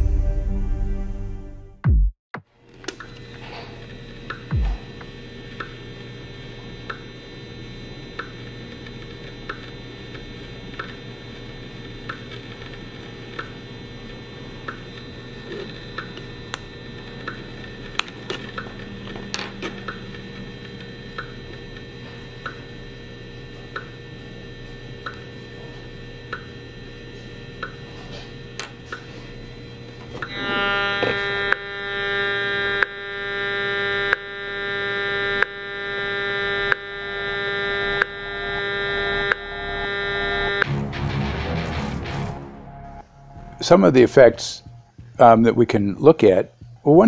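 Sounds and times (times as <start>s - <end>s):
loud harsh pulsing buzz: 3.0s - 45.2s
low hum: 3.5s - 7.2s, 28.7s - 45.8s
meter ticks: 6.8s - 7.1s, 8.1s - 8.4s, 13.3s - 13.6s, 14.6s - 14.8s, 20.6s - 22.6s, 23.7s - 24.0s, 27.6s - 27.8s.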